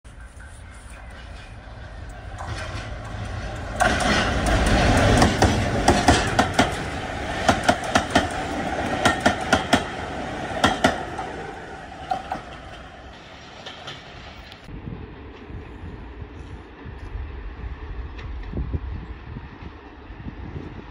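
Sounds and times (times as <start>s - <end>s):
diesel locomotive passing: 0.0s - 20.9s
wheels clacking over rail joints: 0.1s - 14.7s.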